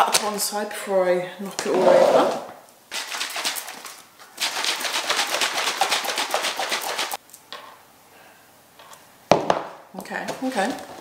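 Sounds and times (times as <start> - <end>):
shaker bottle liquid sloshing: 2.9 - 7.2.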